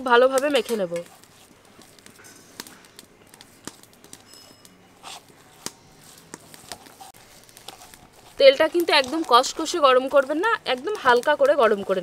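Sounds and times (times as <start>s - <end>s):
sticky paste squishes: 5.0s - 12.0s.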